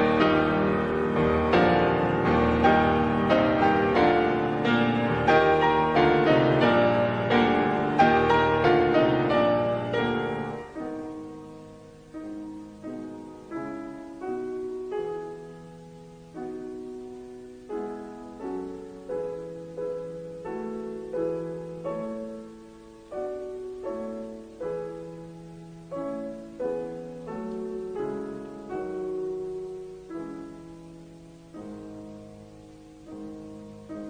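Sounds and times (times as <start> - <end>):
soft solo piano: 0.0 - 34.0.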